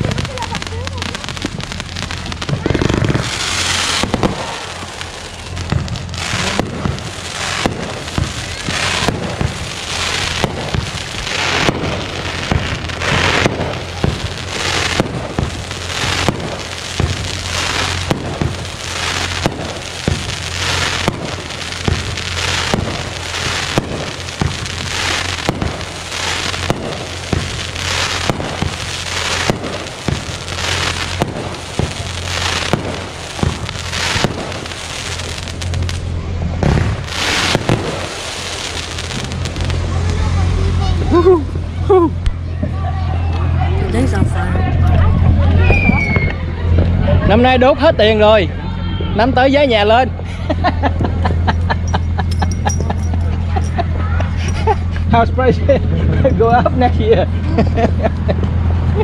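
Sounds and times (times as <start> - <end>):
fireworks bangs and crackling: 0.0 - 59.0.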